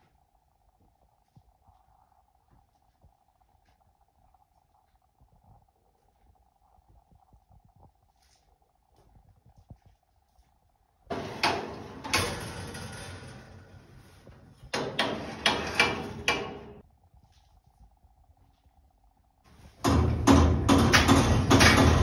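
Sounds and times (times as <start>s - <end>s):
metal grill parts scraping: 11.1s - 16.8s.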